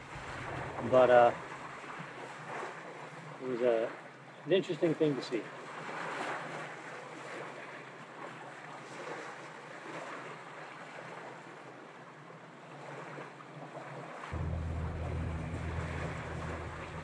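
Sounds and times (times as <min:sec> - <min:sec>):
wind rumble on microphone: 0:00.0 - 0:03.4, 0:14.3 - 0:17.0
waves washing onto beach: 0:00.0 - 0:17.0.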